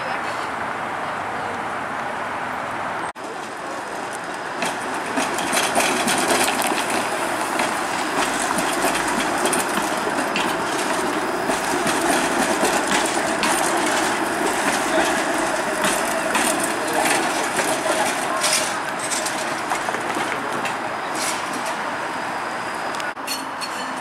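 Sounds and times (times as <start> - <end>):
streetcar passing: 0.0 - 24.0
wheels clicking over rail joints: 3.1 - 22.1.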